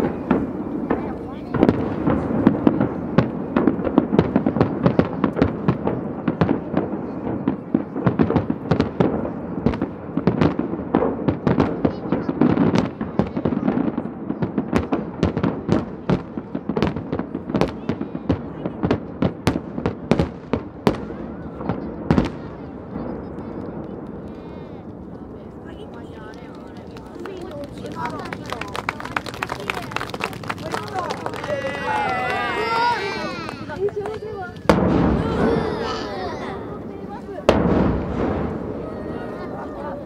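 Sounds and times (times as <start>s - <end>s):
fireworks bangs and crackles: 0.0s - 40.0s.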